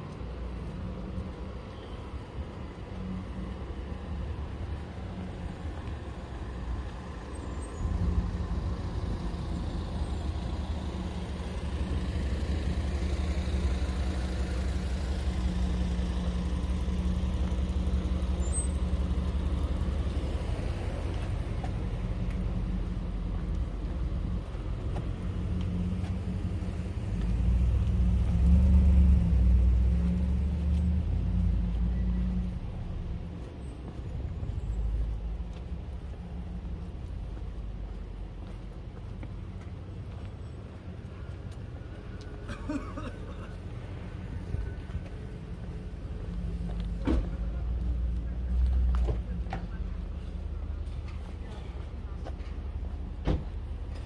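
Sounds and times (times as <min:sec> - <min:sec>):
engine running: 0:00.0 - 0:54.0
faint street noise: 0:00.0 - 0:54.0.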